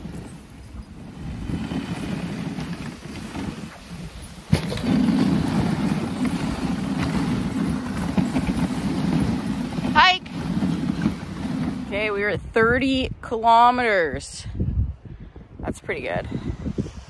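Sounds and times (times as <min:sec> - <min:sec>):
sled runners scraping on snow: 0:00.0 - 0:12.4.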